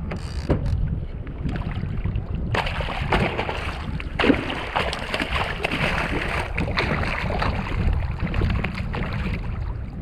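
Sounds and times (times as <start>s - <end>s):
wind rumble on microphone: 0.0s - 10.0s
fish thrashing and splashing: 2.6s - 9.5s.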